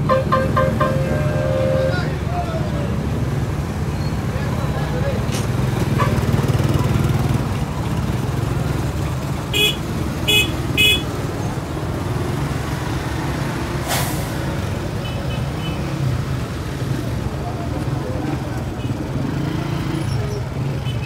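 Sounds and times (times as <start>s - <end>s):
vehicle horn toots: 0.0s - 2.1s, 9.5s - 11.1s
idling engines and traffic: 0.0s - 21.0s
short hiss: 13.8s - 14.5s.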